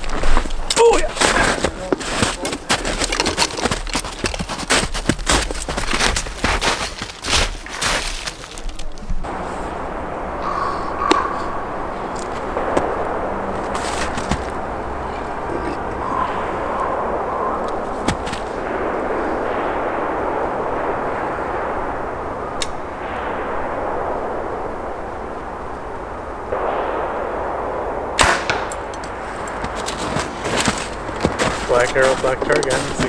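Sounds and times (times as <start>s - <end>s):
steady rushing background noise: 0.0s - 33.0s
bow release crack: 11.0s - 11.5s.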